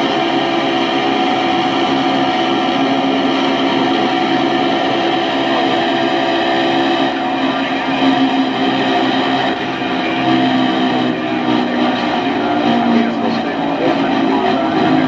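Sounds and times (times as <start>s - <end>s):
aircraft engine drone: 0.0s - 15.0s.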